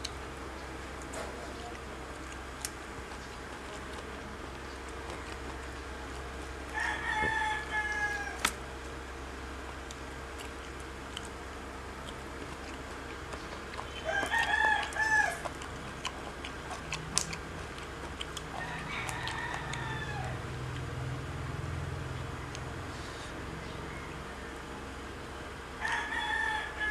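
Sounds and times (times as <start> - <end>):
rooster crowing: 5.0 - 8.5, 13.8 - 15.6, 18.4 - 20.8, 23.1 - 24.8, 25.8 - 26.9.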